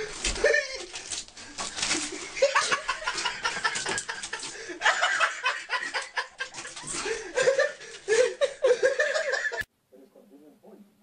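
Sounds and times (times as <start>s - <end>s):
person laughing and snickering: 0.3s - 1.0s, 2.0s - 9.7s.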